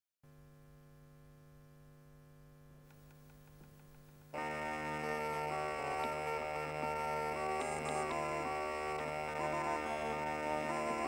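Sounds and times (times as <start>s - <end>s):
faint mains hum: 0.3s - 11.0s
instrumental music with sustained tones: 4.3s - 11.0s.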